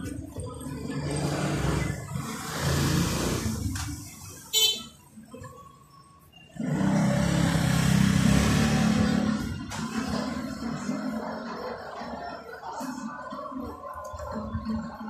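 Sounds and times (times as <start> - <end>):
street traffic rumbling: 0.0 - 15.0
vehicle horn beep: 4.5 - 5.0.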